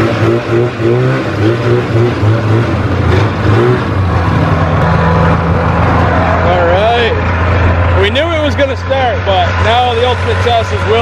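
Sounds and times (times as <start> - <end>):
snowmobile engine revving and idling: 0.0 - 11.0.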